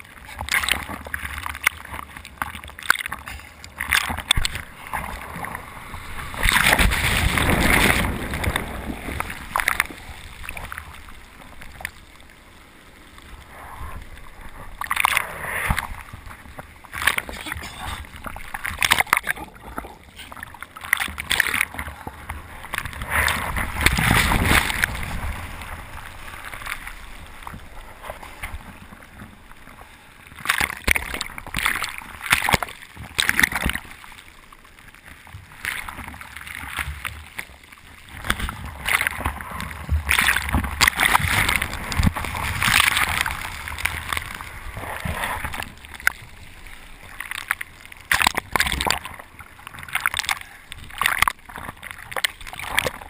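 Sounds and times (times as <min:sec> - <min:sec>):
sea water sloshing over a board: 0:00.2 - 0:53.0
broken waves rushing: 0:04.5 - 0:11.8.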